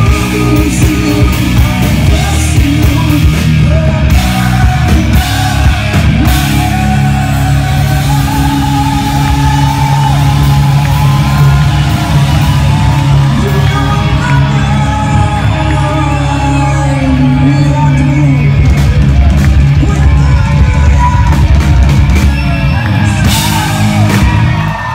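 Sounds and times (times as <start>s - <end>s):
rock band playing live: 0.0s - 24.9s.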